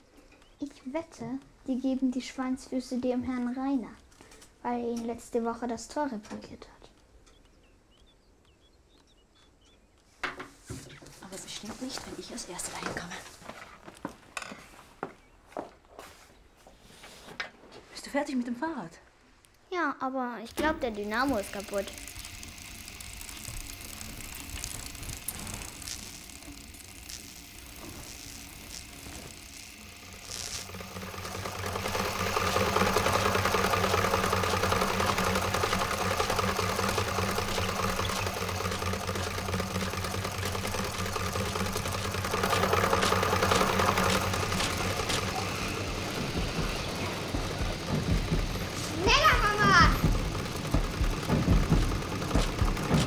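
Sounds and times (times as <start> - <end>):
dynamo hum: 20.5 - 53.0
sewing machine whirring and rattling: 20.5 - 53.0.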